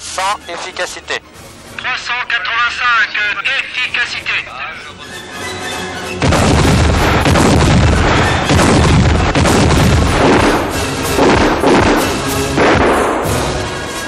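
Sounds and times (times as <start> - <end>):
music: 0.1 - 14.0
artillery fire: 6.2 - 13.8
shells exploding: 6.2 - 13.8.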